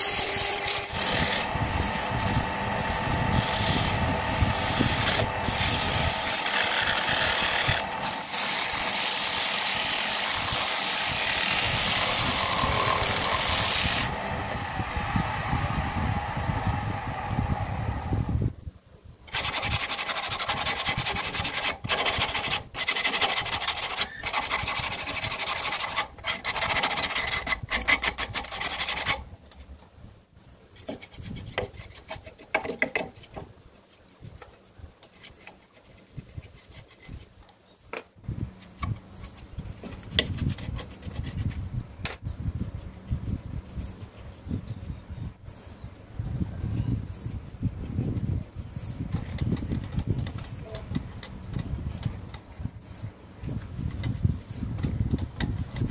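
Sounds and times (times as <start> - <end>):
abrasive scraping on wood: 0.0 - 14.7, 30.7 - 37.4, 38.4 - 41.6
rubbing and light knocks: 19.3 - 30.0, 30.7 - 45.0.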